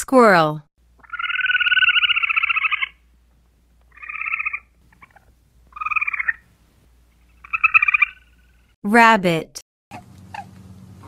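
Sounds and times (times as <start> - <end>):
squirrel chattering: 1.0 - 3.0, 3.9 - 6.4, 7.3 - 8.4.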